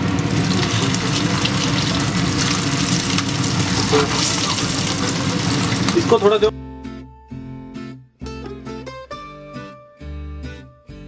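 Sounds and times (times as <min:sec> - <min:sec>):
oil sizzling in frying pan: 0:00.0 - 0:06.4.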